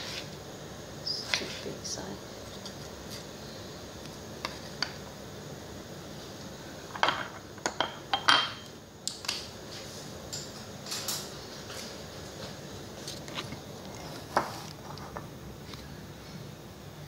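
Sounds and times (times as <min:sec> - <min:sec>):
steady low hum: 0:00.0 - 0:17.0
dishes and utensils clinking: 0:06.9 - 0:08.7, 0:10.3 - 0:11.4.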